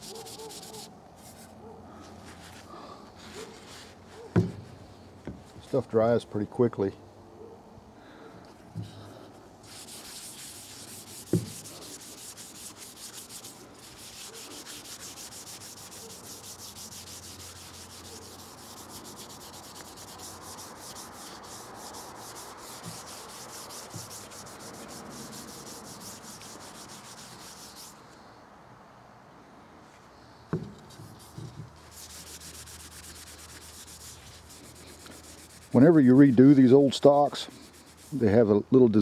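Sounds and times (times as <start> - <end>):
paper towel scratching on wood: 0.0 - 1.6, 2.2 - 4.6, 9.6 - 28.0, 30.8 - 38.4
knock: 4.4 - 4.7.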